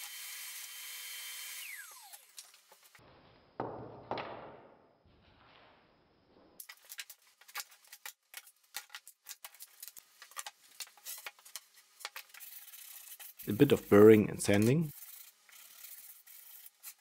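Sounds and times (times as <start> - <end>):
router whirring: 0.0 - 2.4.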